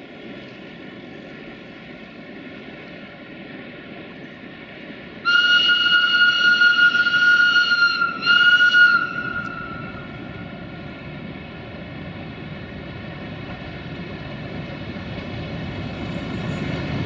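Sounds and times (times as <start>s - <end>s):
diesel locomotive engine running: 0.0s - 17.0s
locomotive warning whistle: 5.3s - 10.1s.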